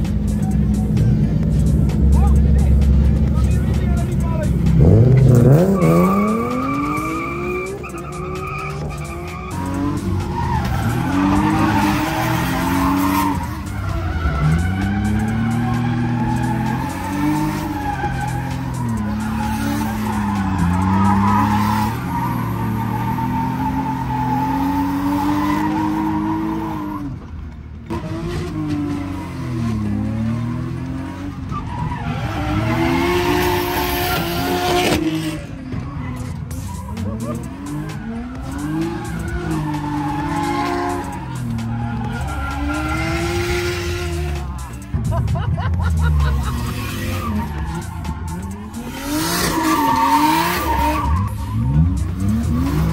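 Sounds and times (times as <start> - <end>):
car engine revving: 0.0 - 52.9
tire noise: 0.0 - 52.9
tyres skidding: 0.0 - 52.9.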